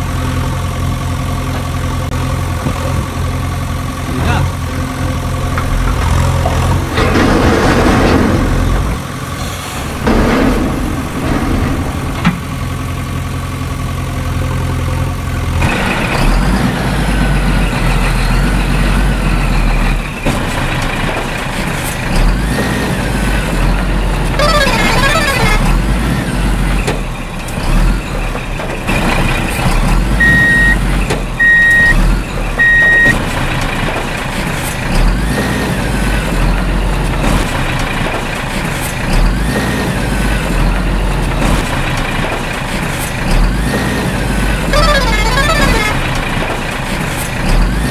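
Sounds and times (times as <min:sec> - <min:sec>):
diesel truck engine running: 0:00.0 - 0:47.9
reversing beeps: 0:30.2 - 0:30.8, 0:31.4 - 0:33.2.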